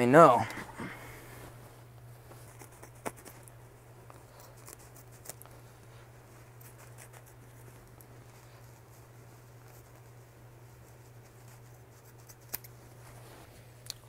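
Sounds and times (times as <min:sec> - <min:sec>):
low steady hum: 0:00.0 - 0:14.0
scissors snipping: 0:12.2 - 0:12.8.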